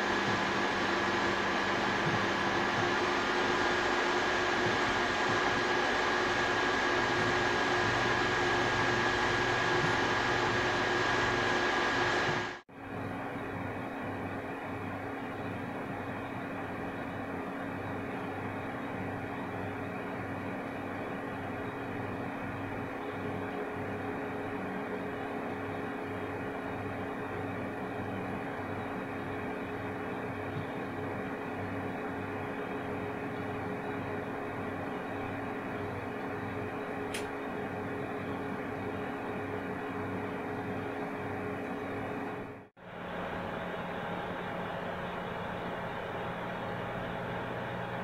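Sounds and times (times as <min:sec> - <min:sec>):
computer fans whirring: 0:00.0 - 0:48.0
faint click: 0:37.1 - 0:37.3.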